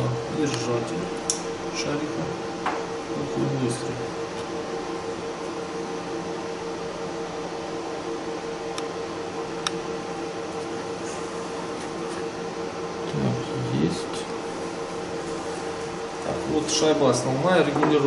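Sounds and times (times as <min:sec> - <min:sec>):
workshop machinery humming: 0:00.0 - 0:18.0.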